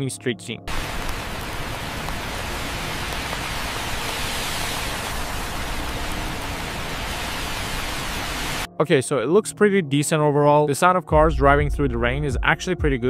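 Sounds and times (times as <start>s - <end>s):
cars driving on wet street: 0.7s - 8.7s
steady rain: 0.7s - 8.7s.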